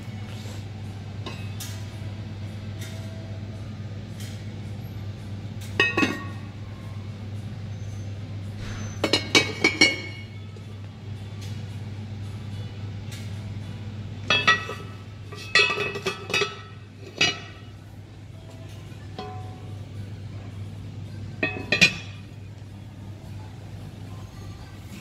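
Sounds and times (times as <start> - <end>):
steady low hum: 0.0 - 25.0
pot lids clinking: 5.7 - 6.5, 9.0 - 10.3, 14.2 - 17.8, 21.4 - 22.4.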